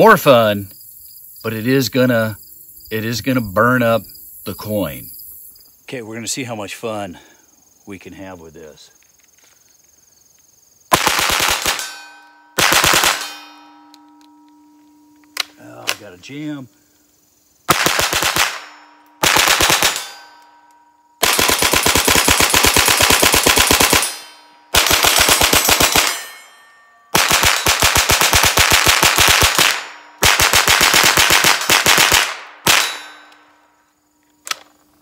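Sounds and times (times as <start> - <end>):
rifle firing rapid shots: 10.9 - 12.0, 12.6 - 13.4, 17.7 - 20.2, 21.2 - 26.3, 27.2 - 33.1.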